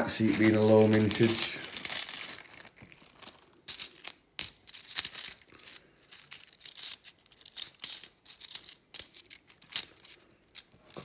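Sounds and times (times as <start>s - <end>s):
coins clinking: 0.2s - 11.0s.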